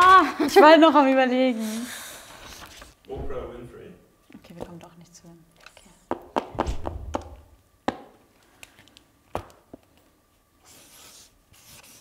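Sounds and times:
markers and clipboards knocking on table: 6.1s - 8.1s
marker scratching on paper: 10.7s - 12.0s.

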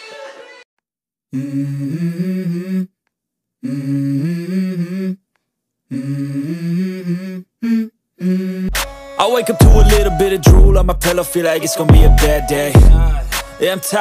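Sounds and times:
hummed vocal pop melody: 5.9s - 14.0s.

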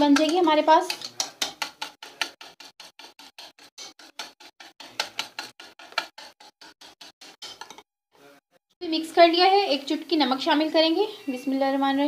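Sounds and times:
utensil beating batter in bowl: 0.0s - 7.9s.

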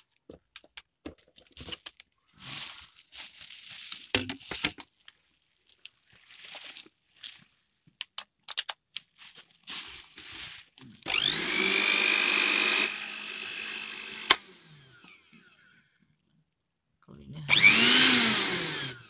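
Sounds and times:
small plastic clicks and knocks: 0.1s - 2.1s, 7.9s - 9.1s
blender motor whining: 11.0s - 15.9s, 17.5s - 19.0s.

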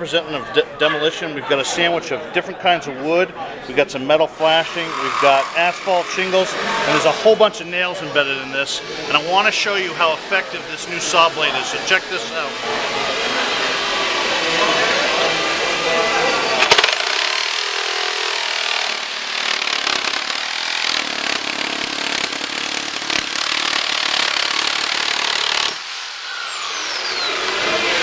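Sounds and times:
reciprocating saw cutting: 4.2s - 28.0s
motor winding down whine: 4.4s - 7.2s, 10.1s - 28.0s
saw starting with sharp crack: 4.5s - 7.1s, 16.5s - 28.0s.

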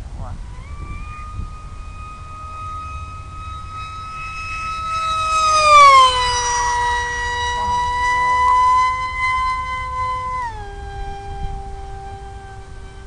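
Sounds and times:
model plane motor whine: 0.0s - 13.0s.

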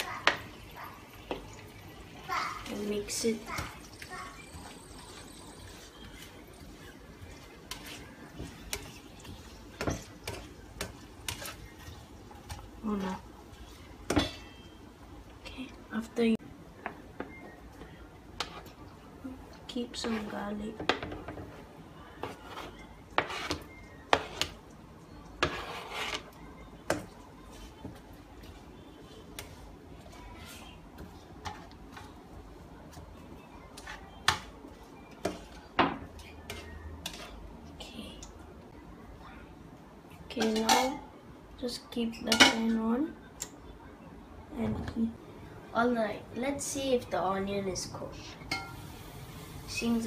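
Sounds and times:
spatula scraping pan: 2.8s - 14.7s, 19.9s - 24.6s, 25.3s - 32.2s, 33.7s - 37.5s
faint steady hiss: 47.8s - 50.0s.

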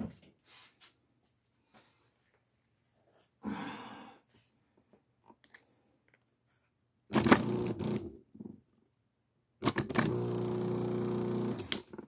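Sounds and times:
drain pump clattering and humming: 7.1s - 8.1s, 9.6s - 12.0s.

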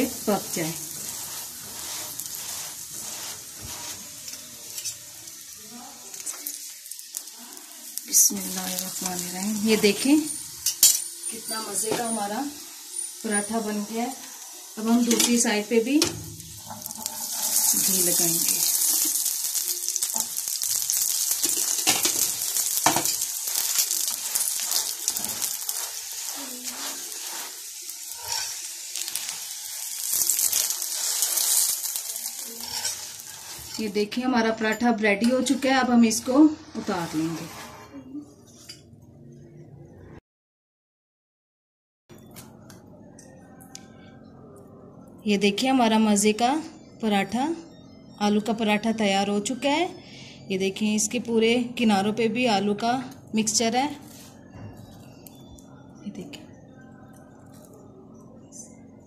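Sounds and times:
soft rubbing: 0.0s - 5.1s, 23.5s - 28.6s
flatbread sizzling on a hot pan: 0.0s - 34.2s
small crackles: 16.8s - 33.8s.

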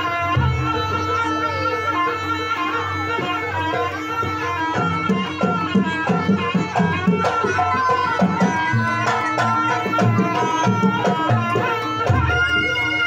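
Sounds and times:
hand drums beating: 0.0s - 13.0s
reedy shawm melody: 0.0s - 13.0s.

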